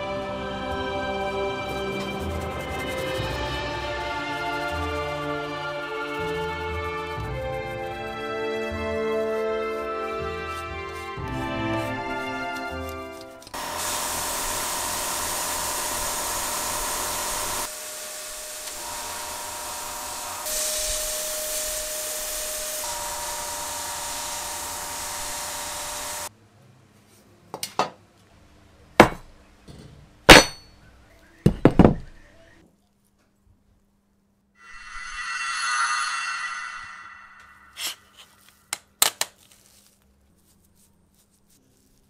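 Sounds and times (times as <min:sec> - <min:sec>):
abrasive blasting hiss: 0:19.9 - 0:26.3.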